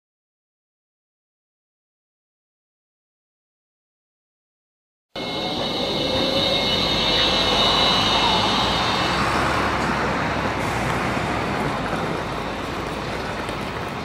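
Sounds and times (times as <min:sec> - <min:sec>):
tram electric whine: 0:05.2 - 0:14.0
tram wheels rumbling on rails: 0:05.2 - 0:14.0.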